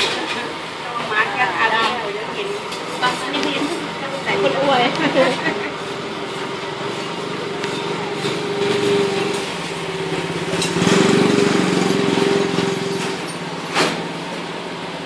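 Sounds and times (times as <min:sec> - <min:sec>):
small engine humming: 0:05.0 - 0:14.2.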